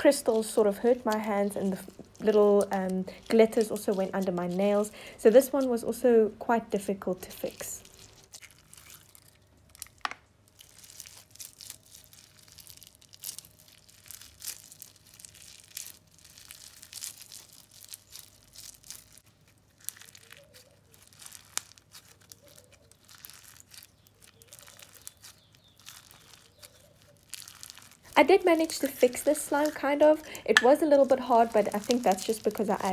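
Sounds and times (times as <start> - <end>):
crunchy slime crackling and popping: 0.0 - 6.1, 6.8 - 32.9
slime tearing: 7.3 - 32.9.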